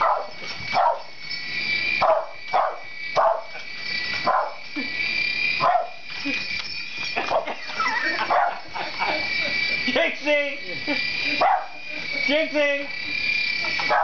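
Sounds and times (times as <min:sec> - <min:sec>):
small dog barking: 0:00.0 - 0:01.1, 0:02.0 - 0:03.5, 0:04.2 - 0:04.6, 0:05.6 - 0:06.0, 0:08.2 - 0:08.6, 0:11.4 - 0:11.8, 0:13.8 - 0:14.0
toy helicopter motor whine: 0:00.0 - 0:14.0.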